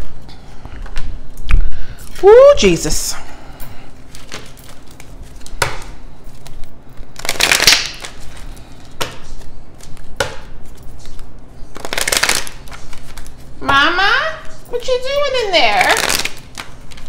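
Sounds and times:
playing cards being shuffled: 4.1s - 13.6s, 15.8s - 17.0s.

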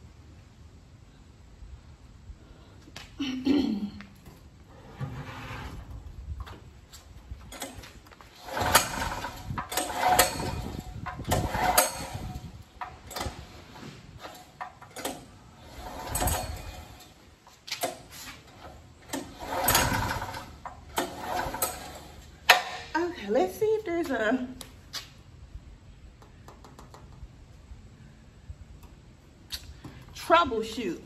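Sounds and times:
generator recoil starter cranking: 7.4s - 22.9s.

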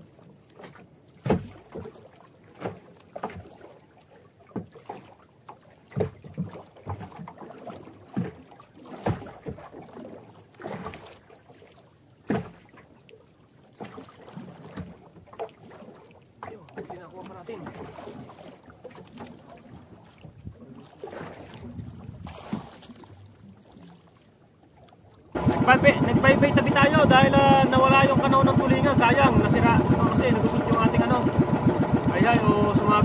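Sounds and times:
waves slapping against hull: 0.0s - 33.0s.

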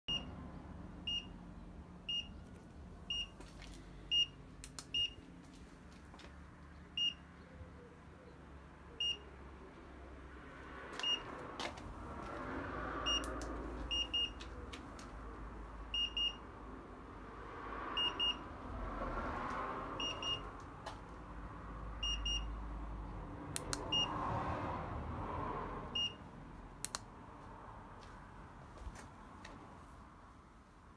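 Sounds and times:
turn signal beeping: 0.1s - 0.4s, 1.0s - 1.4s, 2.1s - 3.4s, 4.1s - 5.2s, 7.0s - 7.2s, 9.0s - 9.3s, 11.0s - 11.3s, 13.0s - 14.7s, 15.9s - 16.5s, 18.0s - 18.5s, 20.0s - 20.5s, 22.0s - 22.6s, 23.6s - 24.2s, 25.9s - 27.0s.

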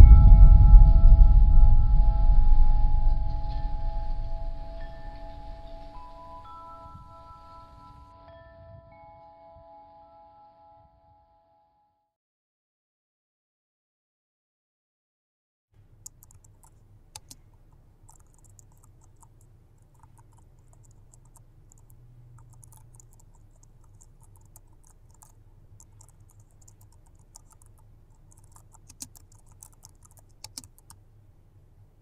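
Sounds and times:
steady low hum: 0.0s - 7.8s, 15.8s - 32.0s
laptop keyboard typing: 16.0s - 31.0s.

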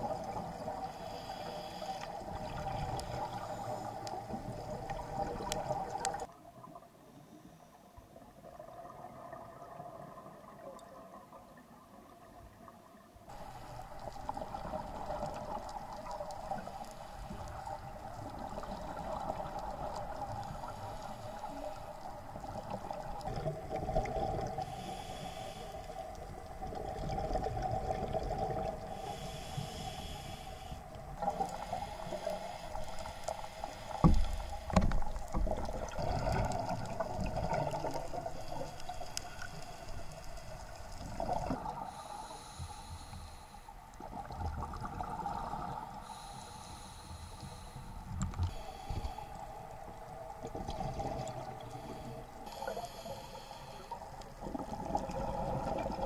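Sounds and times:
underwater hum: 0.0s - 56.0s
regulator inhalation hiss: 0.8s - 2.3s, 15.8s - 22.1s, 24.6s - 26.2s, 28.9s - 35.2s, 38.2s - 41.0s, 41.8s - 43.8s, 46.0s - 50.1s, 51.6s - 54.4s.

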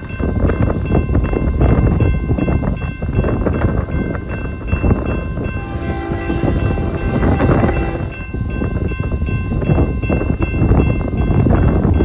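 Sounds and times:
wind buffeting microphone: 0.0s - 12.0s
distant locomotive horn: 5.5s - 8.2s.

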